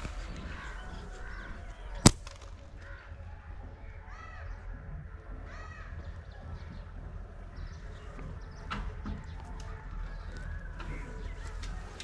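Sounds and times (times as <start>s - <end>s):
bird calling: 0.0s - 12.0s
slingshot snap: 2.1s - 2.6s.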